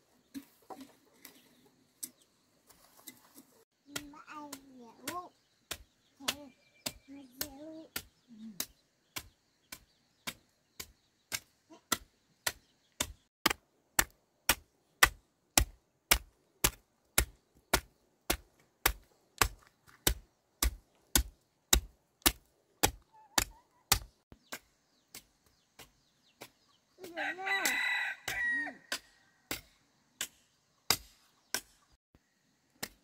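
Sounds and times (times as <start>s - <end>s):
small child's voice: 3.7s - 5.4s, 6.2s - 8.6s, 11.7s - 12.0s
garden hoe striking soil: 3.8s - 32.0s, 32.7s - 33.0s.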